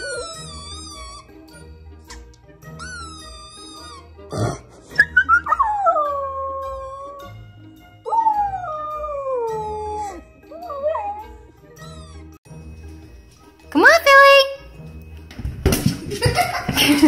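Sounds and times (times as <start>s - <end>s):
background music: 0.0s - 17.0s
young dog howling: 8.1s - 11.4s.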